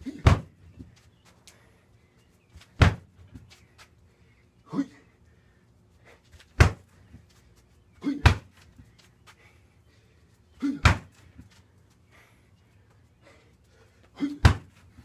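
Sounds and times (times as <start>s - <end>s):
knee strikes on punching bag: 0.2s - 0.6s, 2.8s - 3.1s, 6.6s - 6.8s, 10.8s - 11.1s, 14.4s - 14.8s.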